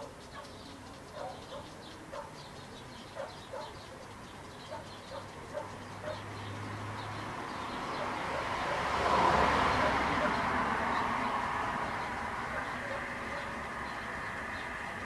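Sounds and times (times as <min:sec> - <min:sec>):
dog barking: 0:00.0 - 0:02.4, 0:03.1 - 0:04.0, 0:04.7 - 0:06.3, 0:07.9 - 0:09.0, 0:09.7 - 0:10.6, 0:12.4 - 0:13.6.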